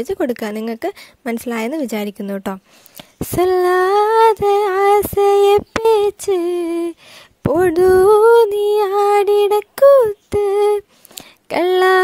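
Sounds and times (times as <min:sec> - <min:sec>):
woman singing unaccompanied: 0:03.2 - 0:12.0.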